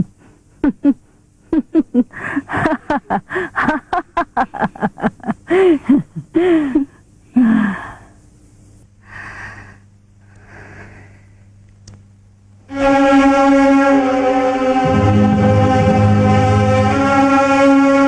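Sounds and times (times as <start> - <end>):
woman laughing: 0.0 - 7.7
faint breathy sounds: 5.5 - 8.4, 9.0 - 11.6.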